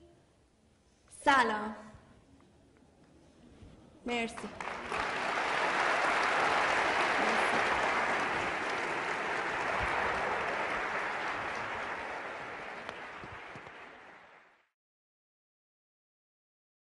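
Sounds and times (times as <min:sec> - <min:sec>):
audience applauding: 0:04.4 - 0:14.7.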